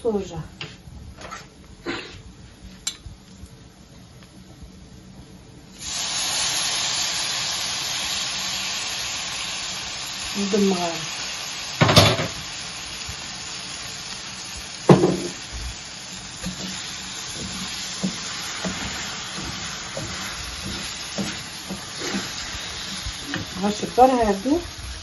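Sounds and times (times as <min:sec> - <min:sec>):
rice sizzling in a pan: 0:05.7 - 0:25.0
wooden spoon scraping pan: 0:16.4 - 0:23.8.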